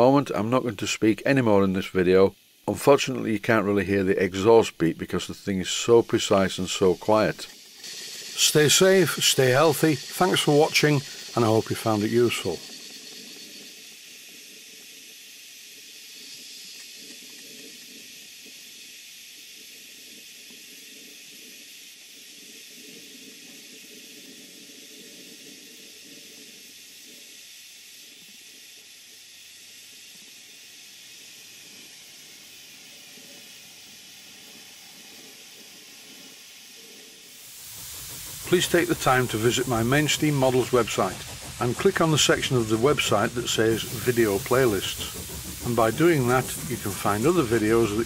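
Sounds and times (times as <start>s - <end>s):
steam engine hissing: 0.0s - 48.0s.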